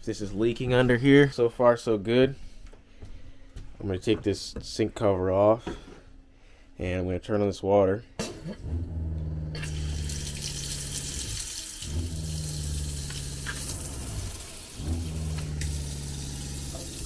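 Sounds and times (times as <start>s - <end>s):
water pump humming: 9.4s - 17.0s
faucet running into steel sink: 9.6s - 17.0s.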